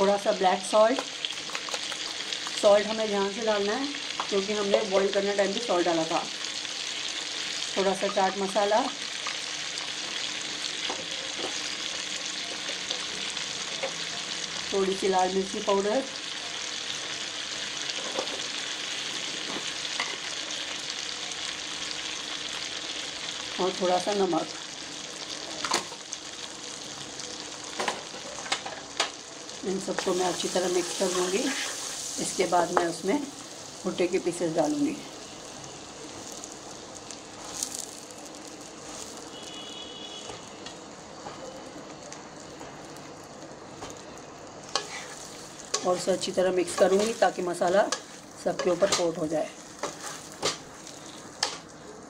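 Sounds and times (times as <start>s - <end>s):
oil sizzling in a pan: 0.0s - 52.0s
small pops from frying: 0.7s - 3.0s, 3.6s - 5.1s, 7.8s - 14.2s, 17.9s - 20.8s, 25.3s - 26.4s, 27.0s - 33.6s, 36.0s - 52.0s.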